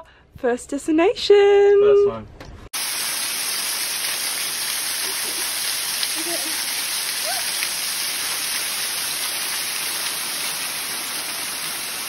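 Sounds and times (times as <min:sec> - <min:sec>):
waterfall splashing on rock: 0:02.8 - 0:12.0.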